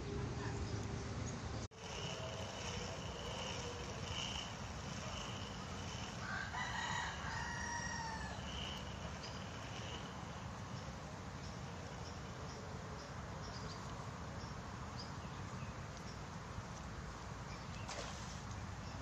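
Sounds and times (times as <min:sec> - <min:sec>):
rooster crowing: 0:05.1 - 0:09.3.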